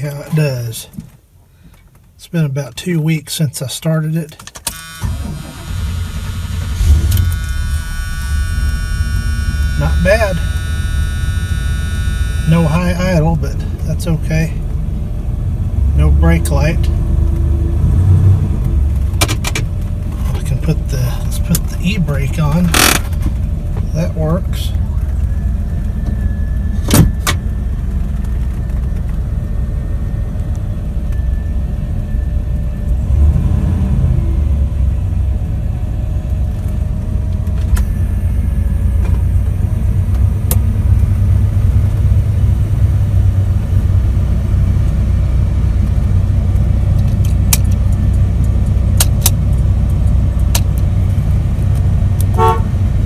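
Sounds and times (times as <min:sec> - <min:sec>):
pickup engine idling low: 0:05.2 - 0:17.1, 0:34.6 - 0:53.0.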